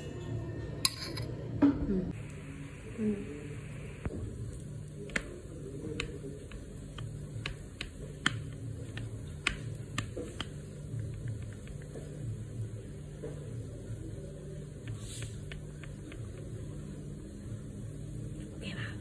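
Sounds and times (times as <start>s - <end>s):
steady low hum: 0.4s - 19.0s
fingers patting dough: 4.5s - 13.3s, 14.6s - 16.9s.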